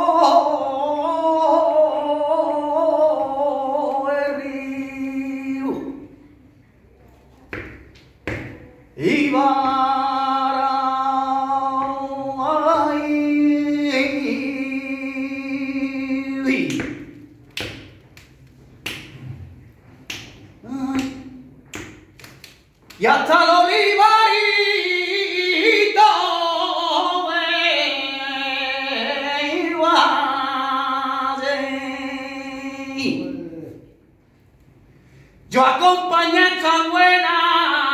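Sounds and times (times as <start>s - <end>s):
man singing unaccompanied: 0.0s - 6.2s, 8.5s - 17.3s, 20.6s - 21.5s, 23.0s - 33.9s, 35.5s - 37.9s.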